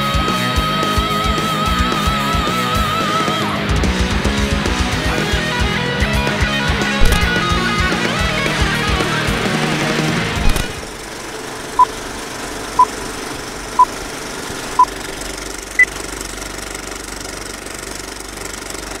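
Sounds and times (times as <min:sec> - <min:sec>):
heavy metal guitar music: 0:00.0 - 0:10.9
film projector rattle: 0:10.5 - 0:19.0.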